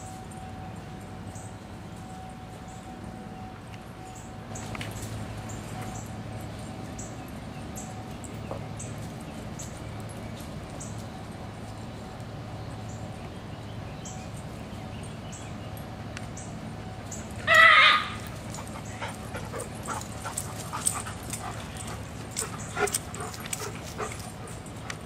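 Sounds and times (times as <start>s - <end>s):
dog crying: 17.4s - 18.3s.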